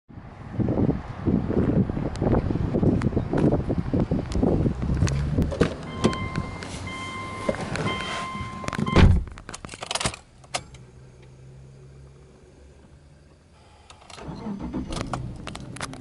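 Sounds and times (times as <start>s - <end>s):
car door shutting: 5.5s - 9.4s
car warning chime: 5.8s - 9.1s.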